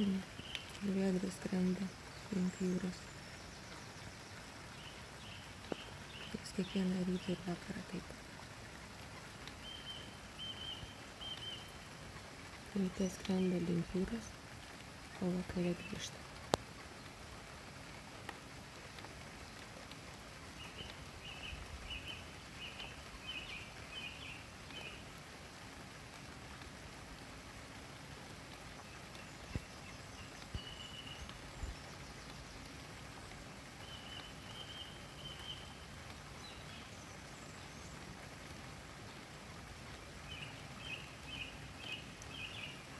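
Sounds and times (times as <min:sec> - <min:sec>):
background hiss: 0:00.0 - 0:42.9
nightingale singing: 0:09.6 - 0:11.9, 0:29.1 - 0:32.6, 0:33.8 - 0:37.6.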